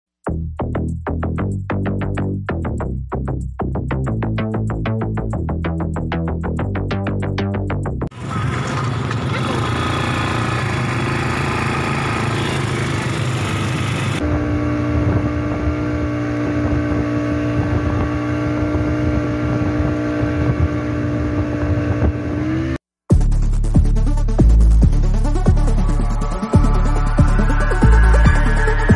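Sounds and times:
motorboat engine running: 0:08.1 - 0:22.6
wind: 0:08.1 - 0:22.8.

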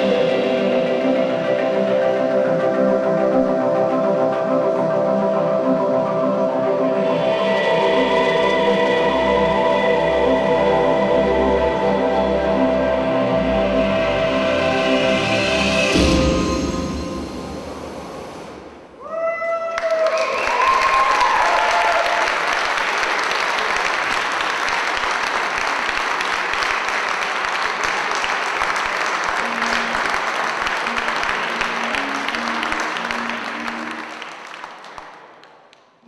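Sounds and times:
musical notes ringing out: 0:00.0 - 0:18.8
audience applauding: 0:19.6 - 0:36.0.

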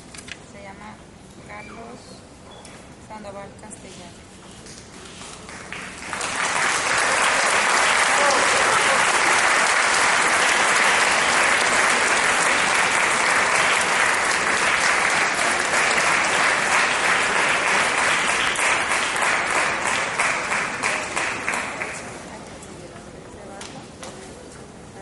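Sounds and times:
audience applauding: 0:05.5 - 0:22.3.

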